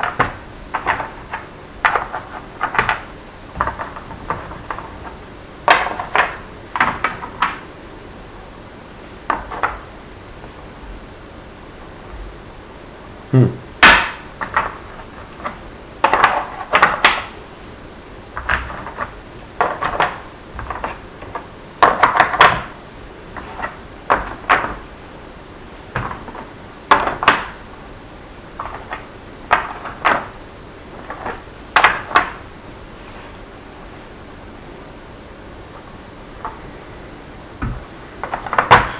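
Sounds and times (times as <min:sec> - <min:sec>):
blocks clicking into slots: 0:00.0 - 0:07.6, 0:13.8 - 0:17.3, 0:18.4 - 0:22.8, 0:26.0 - 0:27.6, 0:28.6 - 0:30.4, 0:31.0 - 0:32.4.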